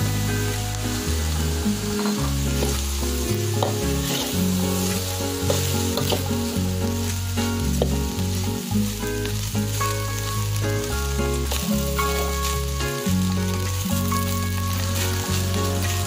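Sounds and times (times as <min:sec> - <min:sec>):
food sizzling in a wok: 0:00.0 - 0:16.0
metal spatula scraping a pan: 0:03.6 - 0:06.6.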